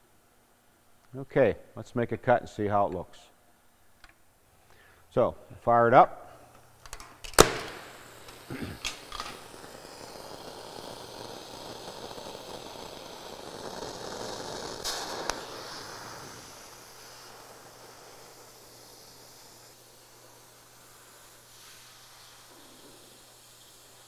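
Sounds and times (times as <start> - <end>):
spark striker clicks: 6.8 - 16.8
torch igniting pop: 7.2 - 19.3
torch flame hissing: 7.3 - 24.0.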